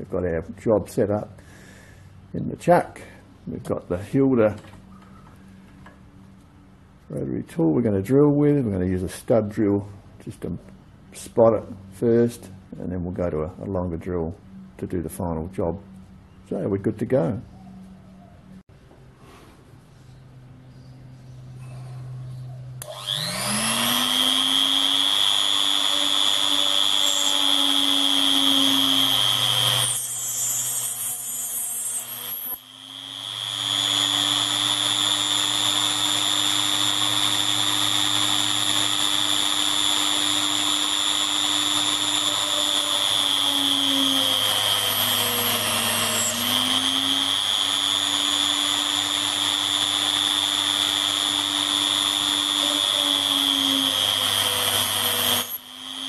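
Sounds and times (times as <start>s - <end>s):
rotary tool motor whining: 22.8s - 56.0s.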